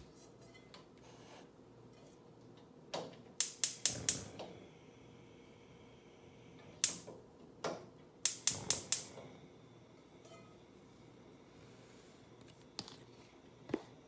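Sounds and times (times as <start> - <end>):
gas stove igniter clicking: 3.0 - 5.6, 6.5 - 9.6.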